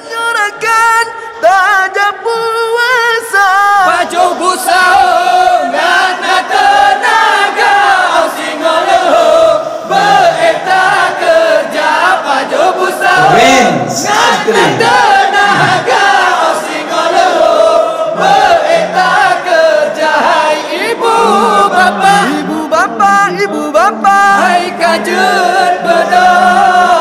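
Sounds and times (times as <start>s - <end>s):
group chanting and singing: 0.0s - 27.0s
person singing alone: 13.0s - 16.0s, 20.8s - 27.0s.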